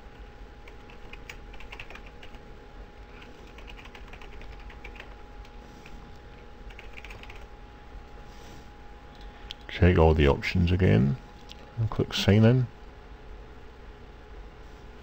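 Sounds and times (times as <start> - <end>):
computer keyboard typing: 0.6 - 2.4, 3.1 - 5.2, 6.7 - 7.5.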